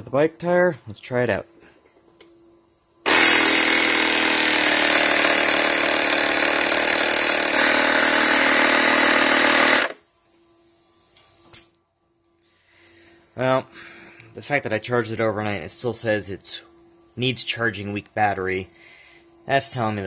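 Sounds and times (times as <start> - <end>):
click: 2.2 - 2.5
electric air compressor running: 3.0 - 10.3.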